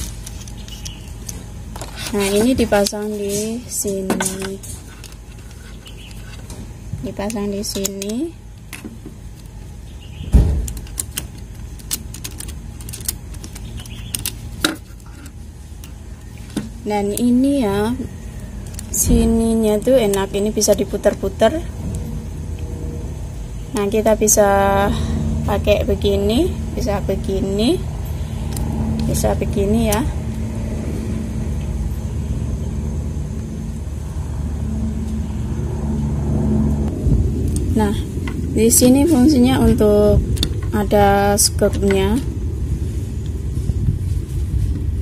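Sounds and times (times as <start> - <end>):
low steady rumble: 0.0 - 45.0.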